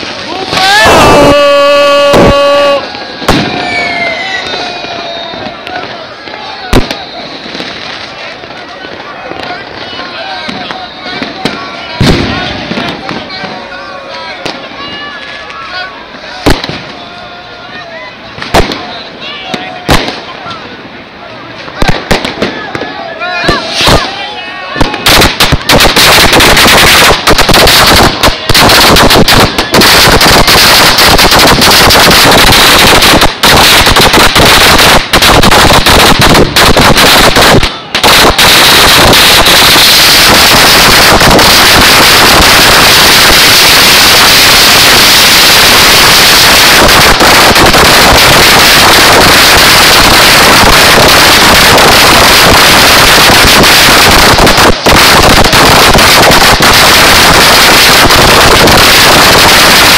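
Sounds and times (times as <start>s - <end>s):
firecrackers banging: 0.0s - 59.9s.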